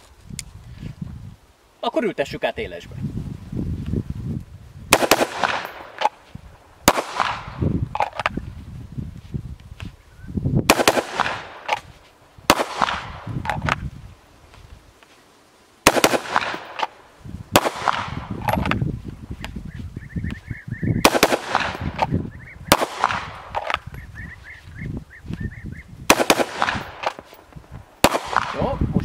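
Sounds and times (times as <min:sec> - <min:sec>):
gunshots with ringing echo: 0:04.9 - 0:06.1, 0:06.8 - 0:07.6, 0:10.7 - 0:11.8, 0:12.5 - 0:13.3, 0:15.8 - 0:18.7, 0:21.0 - 0:23.8, 0:26.1 - 0:27.2, 0:28.0 - 0:28.8.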